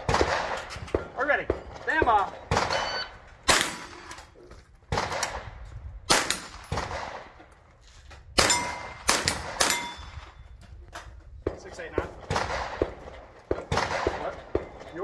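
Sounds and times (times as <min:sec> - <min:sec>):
rifle shots: 0:00.0 - 0:04.3, 0:04.9 - 0:07.4, 0:08.4 - 0:10.4, 0:12.0 - 0:14.9
steel plate ringing: 0:09.6 - 0:10.2.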